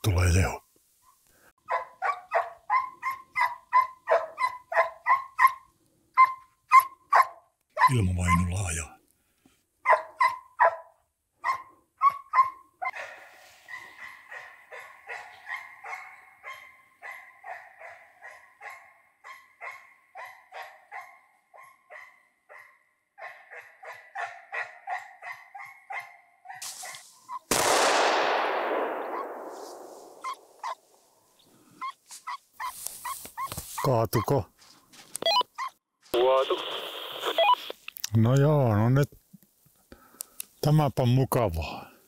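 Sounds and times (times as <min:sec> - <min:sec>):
hound baying: 0:01.6 - 0:08.5, 0:09.8 - 0:27.0
gunshot echoing: 0:27.5 - 0:30.7.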